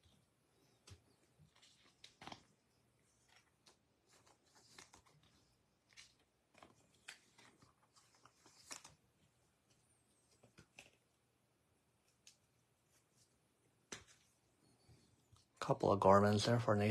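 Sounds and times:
trading cards rustling and tapping: 0:00.0 - 0:11.1, 0:12.0 - 0:14.4.

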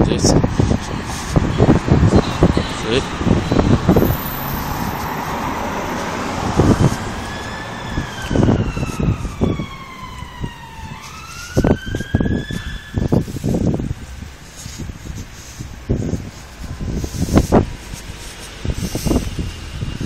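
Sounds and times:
siren wailing: 0:04.0 - 0:13.3.

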